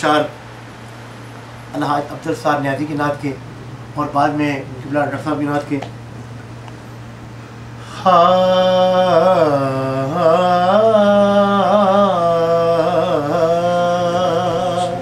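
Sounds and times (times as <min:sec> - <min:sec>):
man singing unaccompanied: 0:07.9 - 0:15.0.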